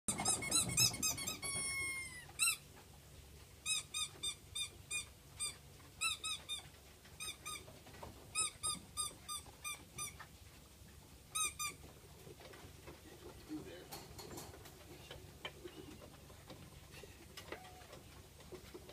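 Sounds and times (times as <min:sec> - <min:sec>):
puppies whimpering: 0:00.1 - 0:02.6
puppy whine: 0:00.1 - 0:02.8, 0:17.4 - 0:18.1.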